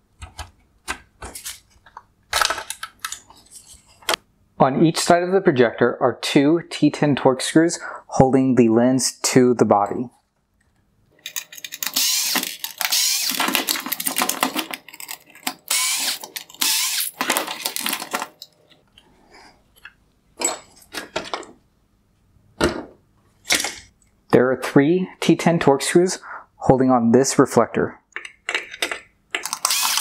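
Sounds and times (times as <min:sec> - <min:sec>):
plastic and metal parts rattling: 0:01.2 - 0:04.2, 0:11.2 - 0:18.5.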